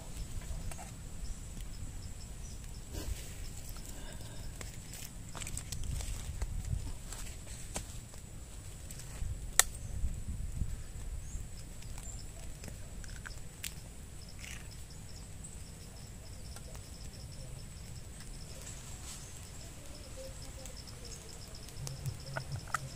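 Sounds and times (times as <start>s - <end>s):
insects buzzing: 0.0s - 22.9s
faint repeating chirp: 14.2s - 22.9s.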